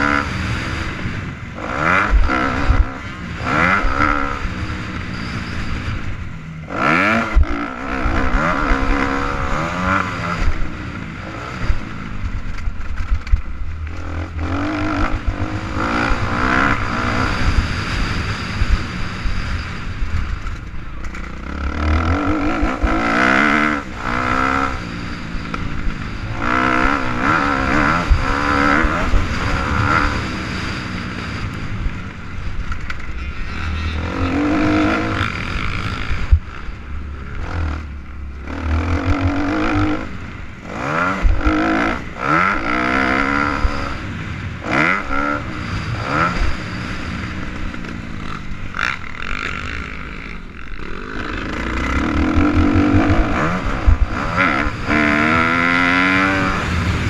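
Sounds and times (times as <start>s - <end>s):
dirt bike engine revving: 0.0s - 57.0s
low rumble: 31.5s - 40.6s, 47.8s - 56.1s.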